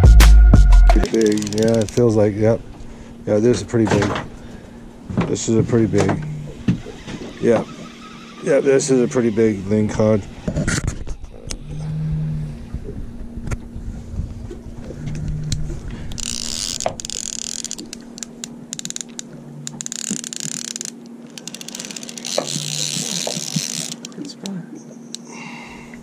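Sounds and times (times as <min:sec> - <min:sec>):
fishing reel gears whirring: 0:01.0 - 0:02.5, 0:06.2 - 0:13.0, 0:14.8 - 0:25.4.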